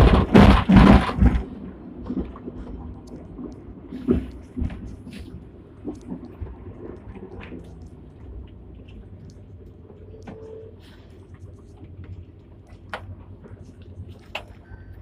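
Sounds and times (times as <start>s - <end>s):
knocks and rattles: 0.0s - 9.0s
tram rumbling: 0.0s - 15.0s.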